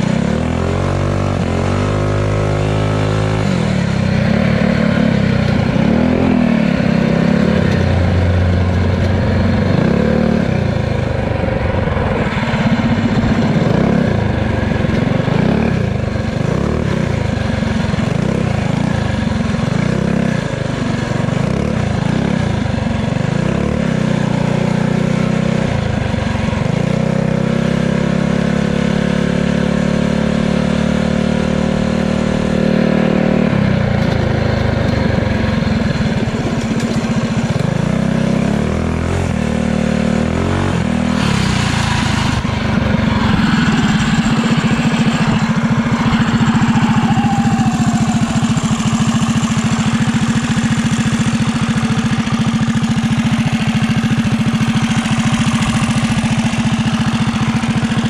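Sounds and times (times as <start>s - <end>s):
pit bike engine revving: 0.0s - 58.0s.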